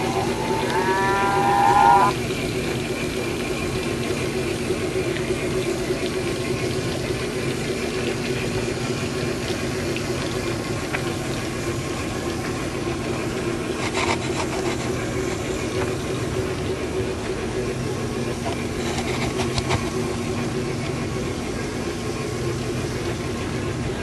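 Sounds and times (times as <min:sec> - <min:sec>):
model train hum: 0:00.0 - 0:04.1.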